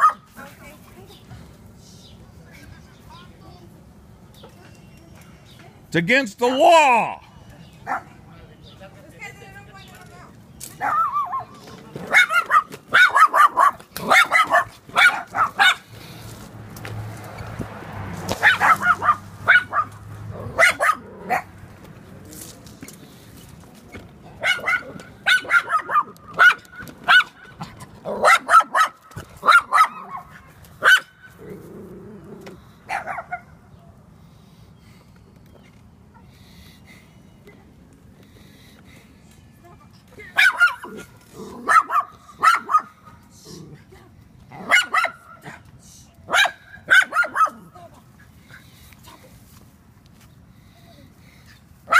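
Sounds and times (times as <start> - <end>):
small dogs barking: 0.0 - 0.3, 7.8 - 8.2, 10.8 - 15.9, 18.3 - 21.6, 24.4 - 31.7, 32.8 - 33.6, 40.2 - 43.2, 44.5 - 45.7, 46.3 - 47.8.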